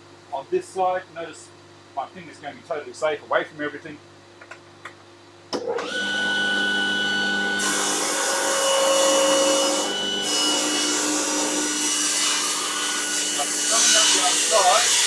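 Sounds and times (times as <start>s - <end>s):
table saw motor whining: 5.6s - 15.0s.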